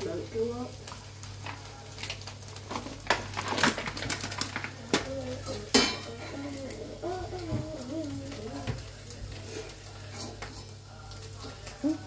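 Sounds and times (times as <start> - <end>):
kitchen clicks and knocks: 5.7 - 6.4.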